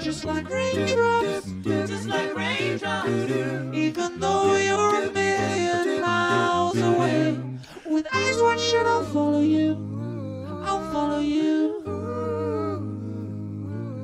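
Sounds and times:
held bass notes: 0.0s - 7.6s
layered singing voices: 0.0s - 14.0s.

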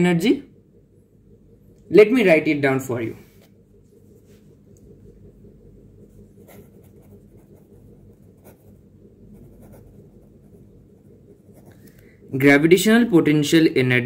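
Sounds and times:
low steady hum: 0.0s - 14.0s
pen scratching on paper: 6.3s - 11.9s.

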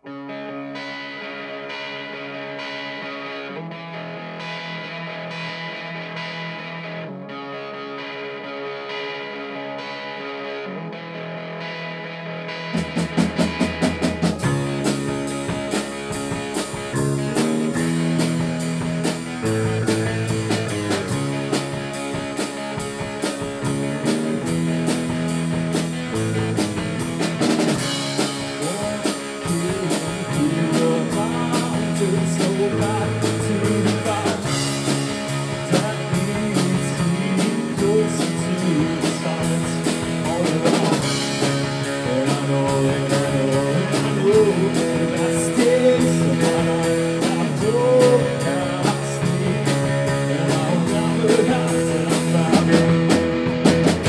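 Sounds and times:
rock band playing: 0.0s - 54.0s
man singing: 28.3s - 53.2s.

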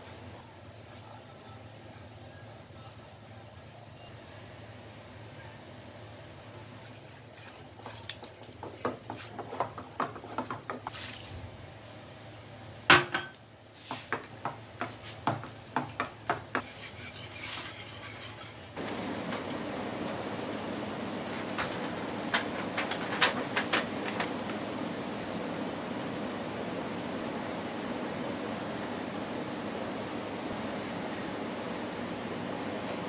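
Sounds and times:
spatula scraping saucepan: 16.5s - 18.8s.

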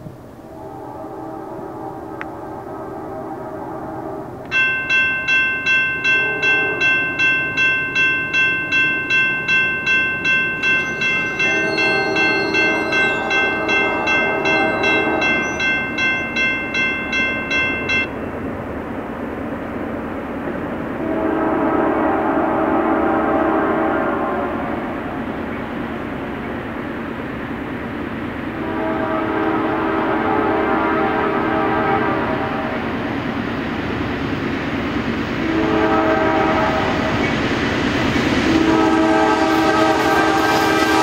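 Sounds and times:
locomotive horn: 0.5s - 4.6s, 6.0s - 7.3s, 11.0s - 16.9s, 20.9s - 25.2s, 28.5s - 32.8s, 35.4s - 37.1s, 38.4s - 41.0s
crossing signal bell ringing: 4.5s - 18.4s.

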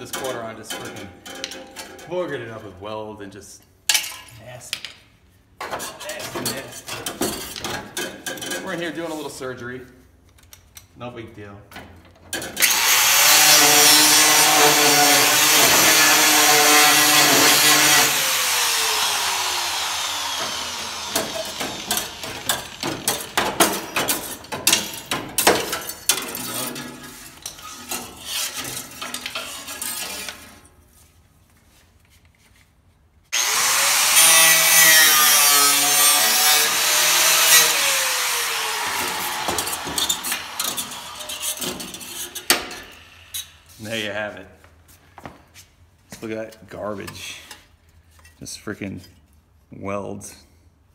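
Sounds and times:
metal clanking and scraping: 0.0s - 2.5s, 5.6s - 9.4s, 20.4s - 30.8s, 38.8s - 43.8s
angle grinder cutting metal: 12.6s - 30.6s, 33.3s - 44.0s.

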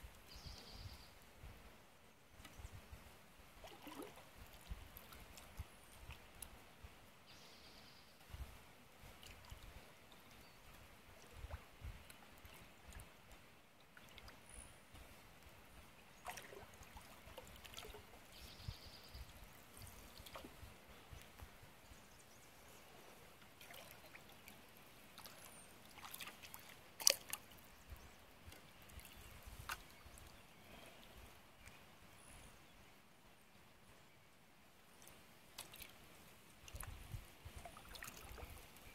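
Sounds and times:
paddle swishes and drips: 2.3s - 7.0s, 8.2s - 32.0s, 34.9s - 38.9s
water dripping and trickling: 25.2s - 27.5s, 36.7s - 38.6s.

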